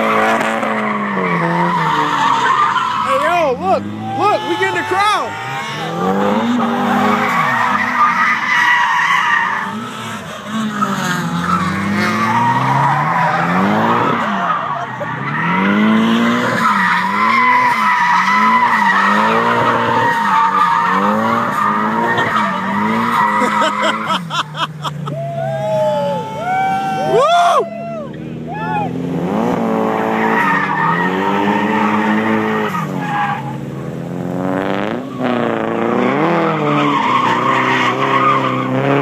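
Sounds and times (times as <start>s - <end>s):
car engines revving: 0.0s - 39.0s
tyres squealing: 0.7s - 9.8s, 16.4s - 27.2s, 36.1s - 38.7s.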